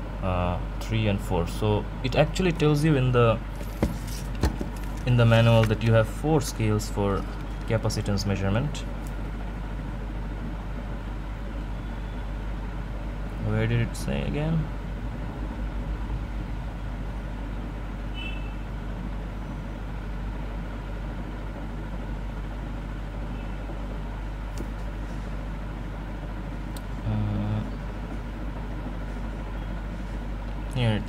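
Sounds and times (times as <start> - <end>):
low rumble and hiss: 0.0 - 31.0.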